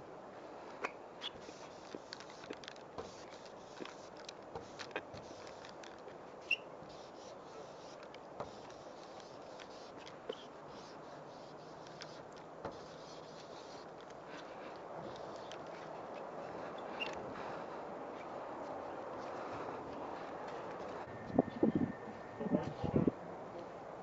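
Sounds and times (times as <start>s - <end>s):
steady background noise: 0.0s - 24.0s
marker nib scratching on wall: 1.3s - 17.2s.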